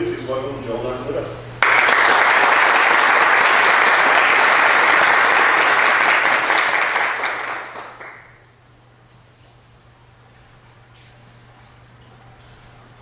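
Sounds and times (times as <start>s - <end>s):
audience applauding: 1.6s - 8.4s.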